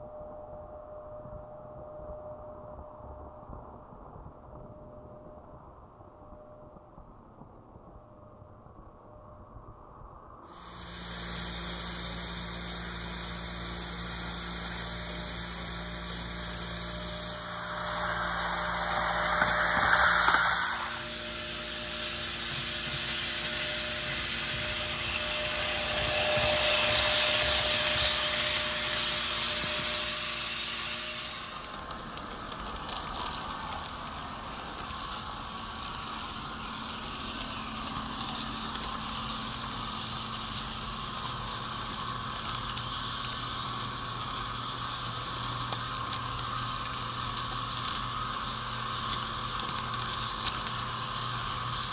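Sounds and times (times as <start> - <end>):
loud hiss: 10.5 - 51.9
model train sound decoder hum: 10.5 - 51.9
model wheels rattling on track: 14.2 - 51.9.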